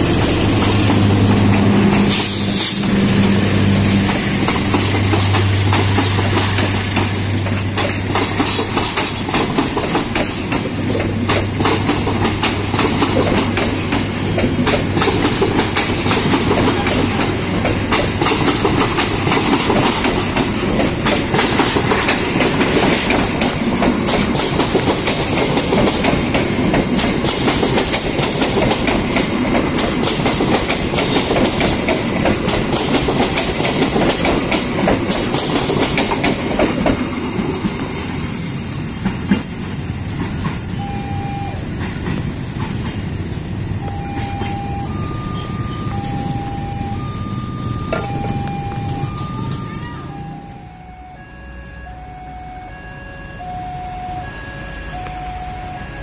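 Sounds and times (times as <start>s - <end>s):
train wheels clattering over rails: 0.0s - 40.8s, 41.7s - 45.0s.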